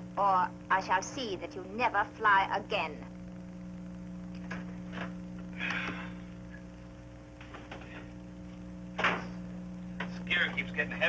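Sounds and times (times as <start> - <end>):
steady electrical hum: 0.0 - 11.0.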